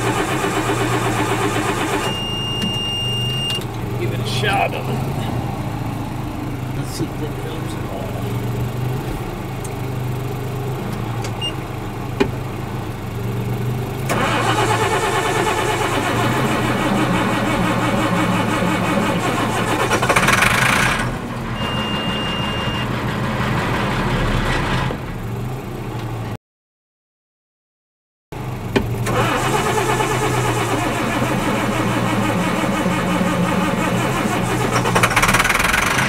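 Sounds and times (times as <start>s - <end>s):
diesel engine cranking and starting: 0.0s - 26.4s, 28.4s - 36.0s.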